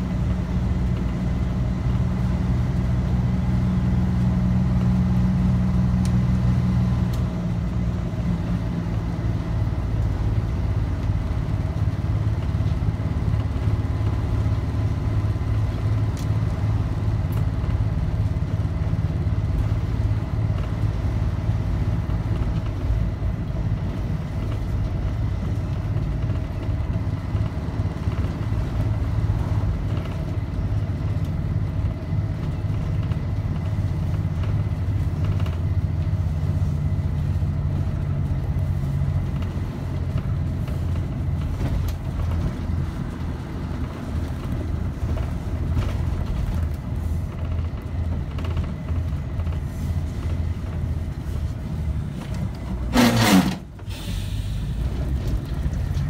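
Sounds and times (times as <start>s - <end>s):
bus engine running steadily: 0.0s - 56.0s.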